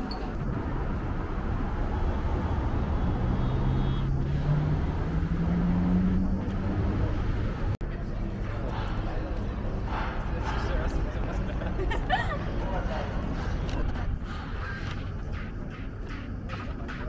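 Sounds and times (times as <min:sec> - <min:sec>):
cars passing rumble: 0:00.0 - 0:17.0
vehicle engine pulling away: 0:00.8 - 0:07.8.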